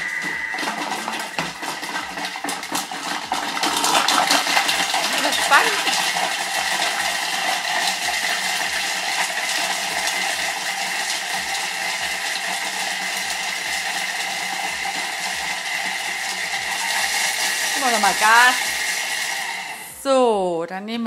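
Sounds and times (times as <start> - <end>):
food processor chopping: 0.1 - 19.9.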